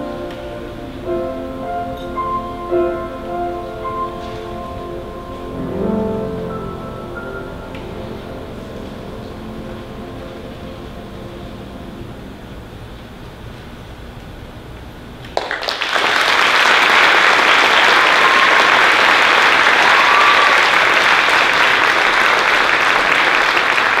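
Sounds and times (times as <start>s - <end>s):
audience applause: 15.2s - 24.0s.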